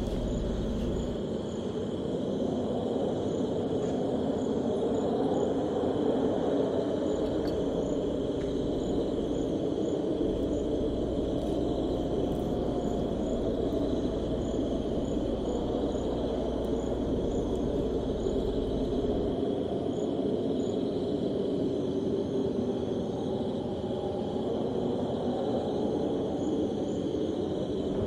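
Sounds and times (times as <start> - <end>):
low hum: 0.0 - 1.2, 7.2 - 19.4
crickets droning: 0.0 - 28.0.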